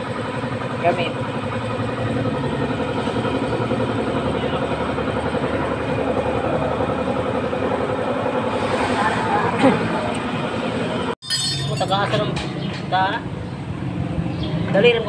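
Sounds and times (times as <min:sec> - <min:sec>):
motorcycle engine running: 0:00.0 - 0:11.2.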